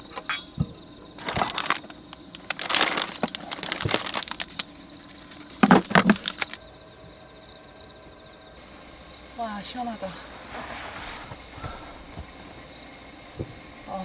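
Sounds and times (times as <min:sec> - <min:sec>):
plastic packaging rustling: 0:01.2 - 0:06.6.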